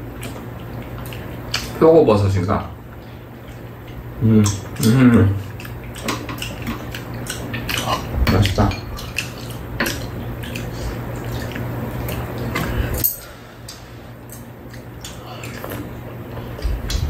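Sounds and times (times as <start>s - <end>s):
steady low hum: 0.0s - 17.0s
utensils clinking against ceramic bowls: 13.0s - 13.4s.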